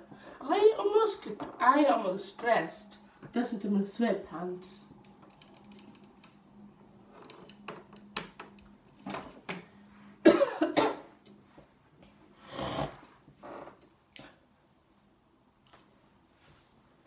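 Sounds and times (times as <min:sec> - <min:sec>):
small clicks and rustles: 0:05.0 - 0:06.4
person coughing: 0:10.2 - 0:11.1.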